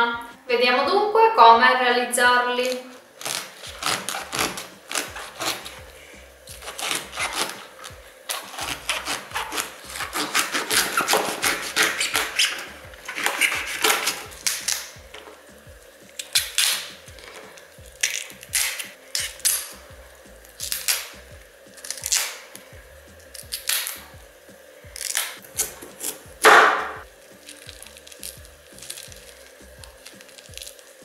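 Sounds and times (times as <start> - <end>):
leaves snapping off: 2.6 - 5.8, 6.5 - 15.4, 16.1 - 19.8, 20.4 - 22.6, 23.2 - 24.0, 25.0 - 31.0
knife cutting artichoke: 2.6 - 5.9, 6.5 - 15.5, 16.1 - 19.8, 20.4 - 21.2, 25.0 - 31.0.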